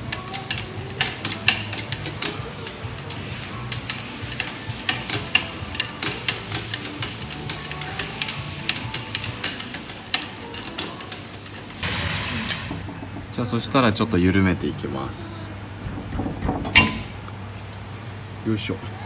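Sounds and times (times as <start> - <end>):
low hum: 11.8 - 17.3.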